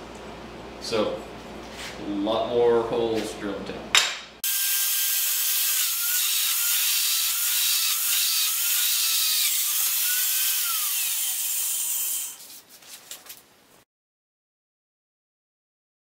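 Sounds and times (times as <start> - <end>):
drill boring through metal: 4.4 - 12.4.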